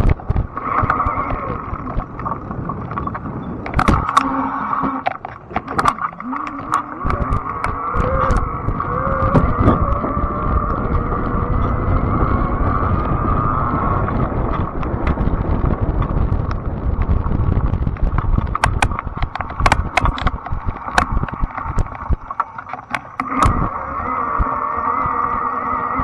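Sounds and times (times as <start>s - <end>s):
bike rattling over rough ground: 0.0s - 26.0s
tire and wind rumble: 0.0s - 26.0s
electric bike motor whine: 7.1s - 16.7s, 23.2s - 26.0s.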